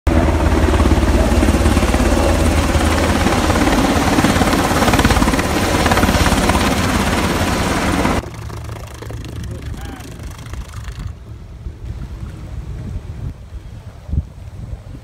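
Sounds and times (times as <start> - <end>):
helicopter rotor beat: 0.1 - 11.5.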